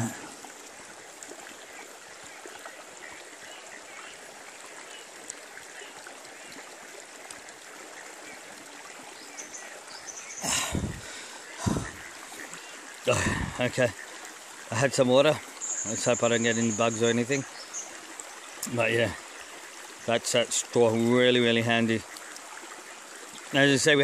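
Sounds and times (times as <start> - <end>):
rocky river flowing: 0.0 - 16.2.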